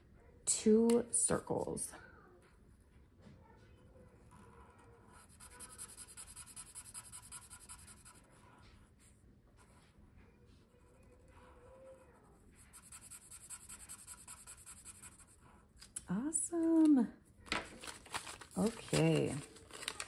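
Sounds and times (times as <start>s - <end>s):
marker scratching on paper: 4.1s - 8.9s, 10.7s - 15.7s.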